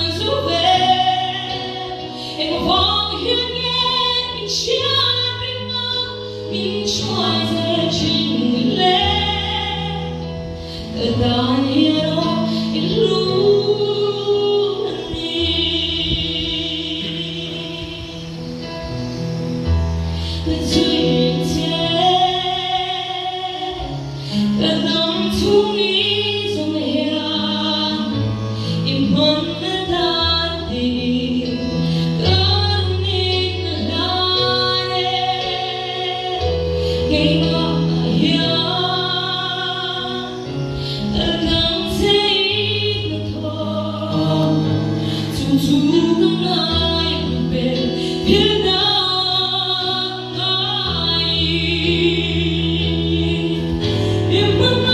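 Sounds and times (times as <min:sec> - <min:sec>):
woman singing gospel: 0:00.0 - 0:18.5, 0:20.3 - 0:54.9.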